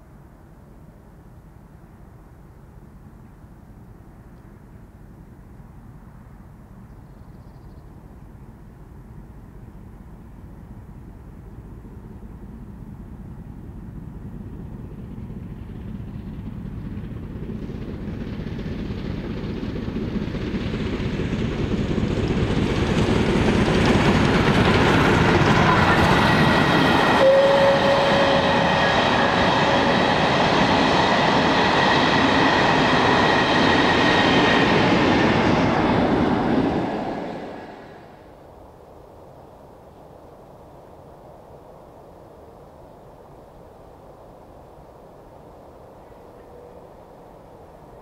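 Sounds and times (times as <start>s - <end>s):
steam locomotive passing: 9.4s - 39.5s.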